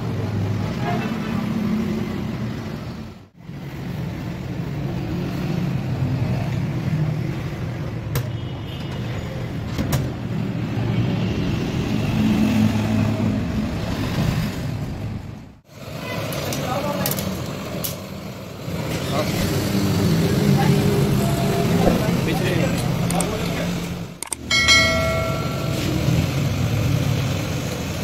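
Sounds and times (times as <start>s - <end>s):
vehicle motor rumble: 18.6s - 28.0s.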